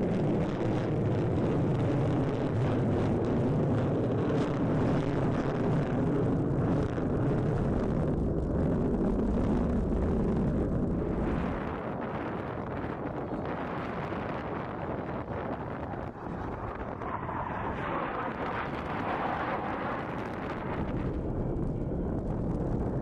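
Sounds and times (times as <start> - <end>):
jet flying past: 11.0 - 22.2.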